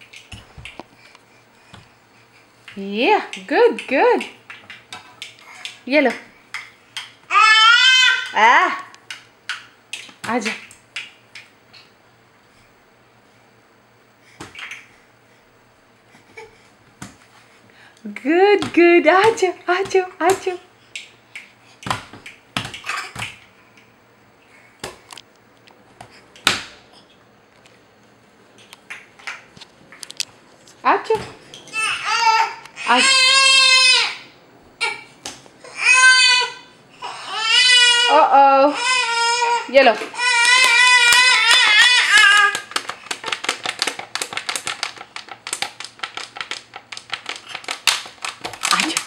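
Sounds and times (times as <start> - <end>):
baby crying: 7.3 - 8.4, 31.7 - 42.7.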